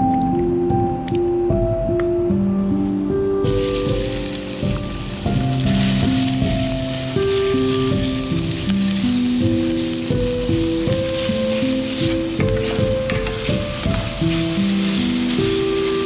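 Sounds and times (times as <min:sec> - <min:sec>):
soft background music: 0:00.0 - 0:16.0
ground beef sizzling in oil: 0:03.5 - 0:16.0.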